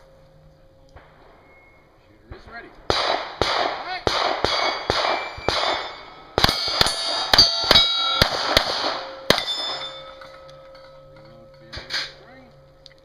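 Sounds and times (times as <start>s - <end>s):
handgun shots: 2.9s - 9.9s
steel plates ringing: 4.4s - 13.0s.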